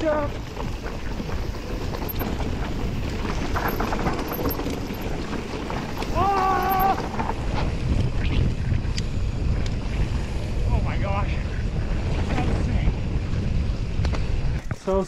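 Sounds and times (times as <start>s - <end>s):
bike knocks and rattles: 0.0s - 8.0s
bike tyres on rocky trail: 0.0s - 15.0s
wind on microphone: 0.0s - 15.0s
rider calling out: 6.0s - 7.2s.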